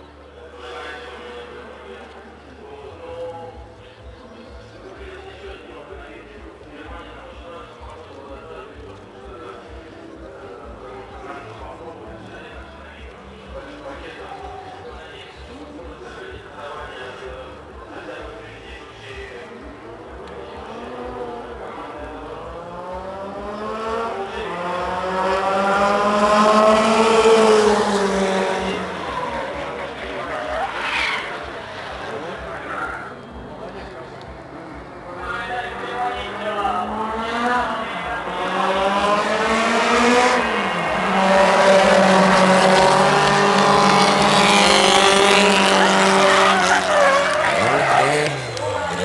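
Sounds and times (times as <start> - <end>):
race car engine accelerating: 20.1 - 49.0.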